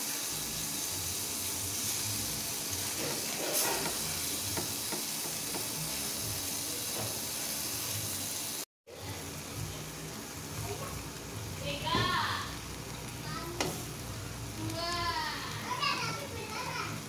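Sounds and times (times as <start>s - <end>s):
meat sizzling on grill pan: 0.0s - 17.0s
spatula pressing meat: 2.8s - 6.0s.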